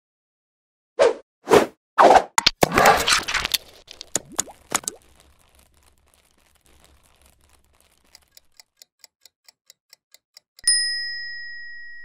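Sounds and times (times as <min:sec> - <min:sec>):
clock-like ticking: 0:06.7 - 0:10.7.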